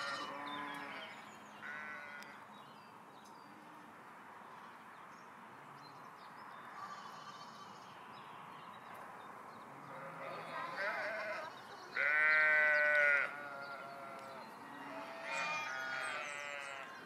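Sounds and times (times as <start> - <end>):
sheep bleating: 0.0 - 2.4, 9.9 - 16.9
soft outdoor ambience: 0.0 - 17.0.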